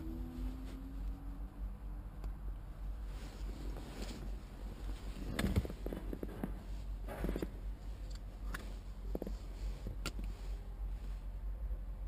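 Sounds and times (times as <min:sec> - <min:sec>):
steady low hum: 0:00.0 - 0:12.0
rustling of hands: 0:03.0 - 0:11.3.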